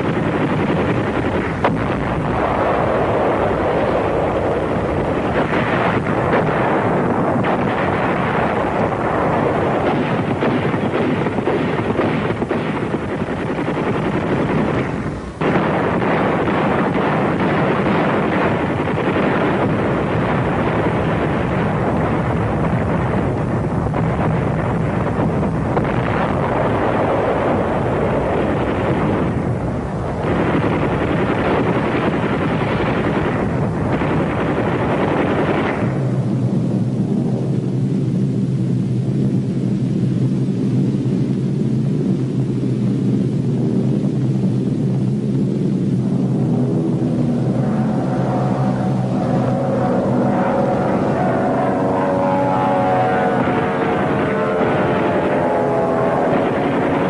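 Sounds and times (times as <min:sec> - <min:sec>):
explosions: 0:00.0 - 0:37.9, 0:43.2 - 0:57.0
gunfire: 0:05.2 - 0:21.6, 0:30.2 - 0:36.1.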